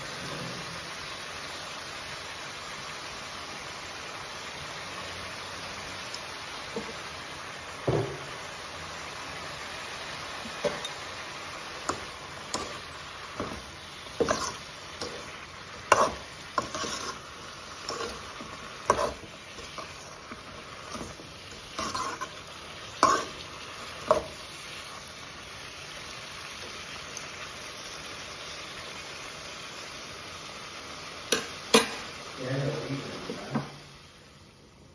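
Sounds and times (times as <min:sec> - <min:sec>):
frying hiss: 0:00.0 - 0:34.9
metal spoon scraping a pan: 0:10.6 - 0:11.2, 0:11.8 - 0:24.9.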